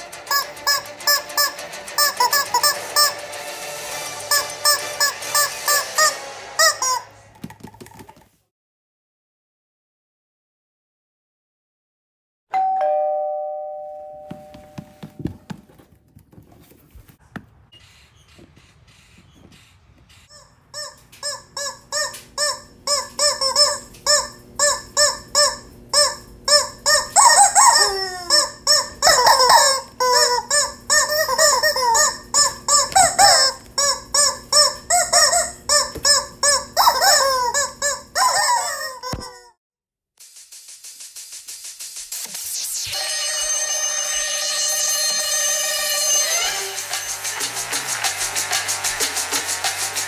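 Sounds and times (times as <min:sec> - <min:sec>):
rubber chickens squeaking a tune: 0:00.1 - 0:03.3, 0:04.1 - 0:07.2, 0:17.7 - 0:39.5
ringing note: 0:12.5 - 0:15.2.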